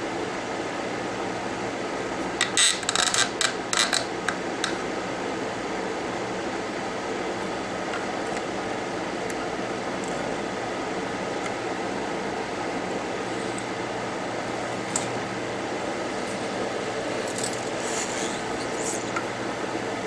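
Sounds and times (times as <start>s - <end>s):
fan-like hiss of air: 0.0s - 2.4s, 3.6s - 20.0s
metal tools clicking and scraping: 17.2s - 19.2s.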